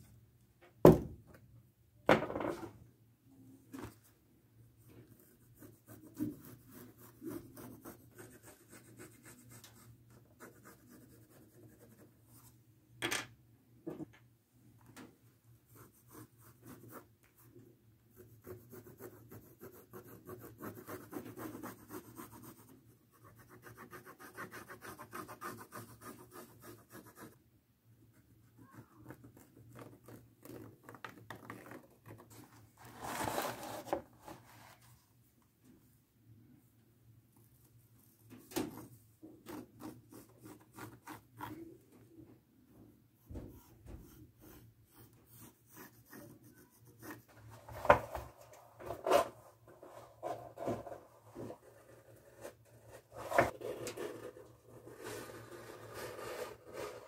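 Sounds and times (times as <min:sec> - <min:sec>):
pencil scratching on leather: 0:05.1 - 0:12.5, 0:15.7 - 0:17.1, 0:18.1 - 0:27.4, 0:38.0 - 0:41.7, 0:43.4 - 0:47.3.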